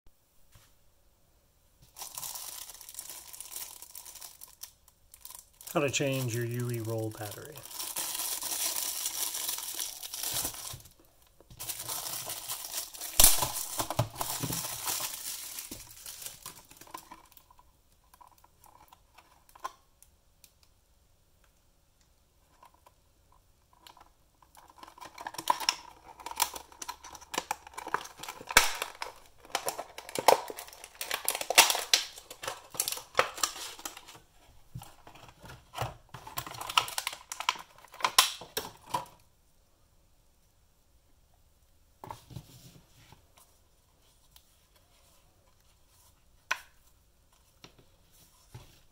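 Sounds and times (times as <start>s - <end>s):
plastic packaging crinkling: 1.9s - 17.6s, 23.8s - 39.2s.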